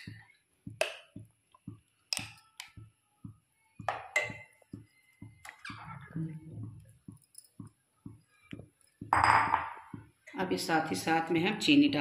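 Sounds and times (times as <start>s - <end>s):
metal spoon tapping pan: 3.8s - 4.6s.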